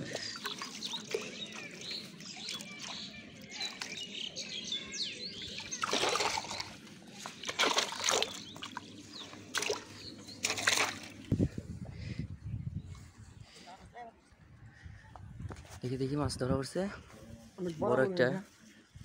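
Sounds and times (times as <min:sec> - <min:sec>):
fish splashing in a metal bucket: 0:00.0 - 0:04.1, 0:05.4 - 0:11.3
small birds chirping: 0:00.0 - 0:11.5.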